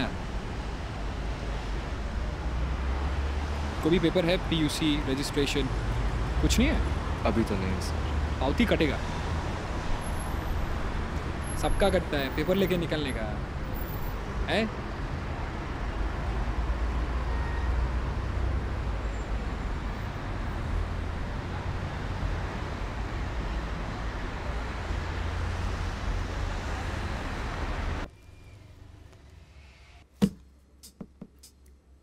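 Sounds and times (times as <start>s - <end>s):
roadside traffic rumble: 0.0s - 32.0s
sharp knock: 30.2s - 31.5s.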